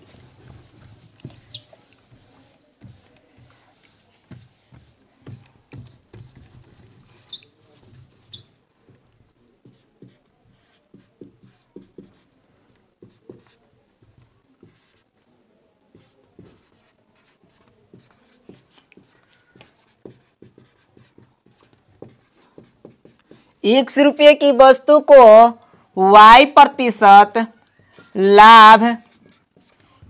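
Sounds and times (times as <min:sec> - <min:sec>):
marker writing on whiteboard: 0:00.0 - 0:25.8, 0:26.6 - 0:30.0
marker squeaks: 0:00.1 - 0:04.9, 0:05.8 - 0:08.6, 0:16.0 - 0:22.7.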